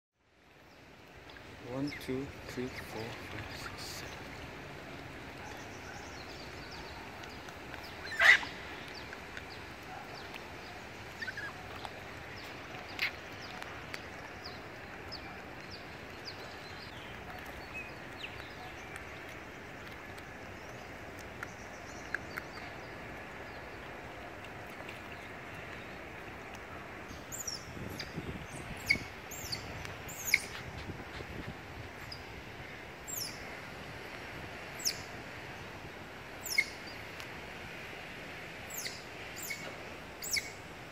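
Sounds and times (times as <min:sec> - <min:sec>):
otters chirping: 0:05.4 - 0:23.0, 0:27.1 - 0:31.3, 0:38.8 - 0:40.6.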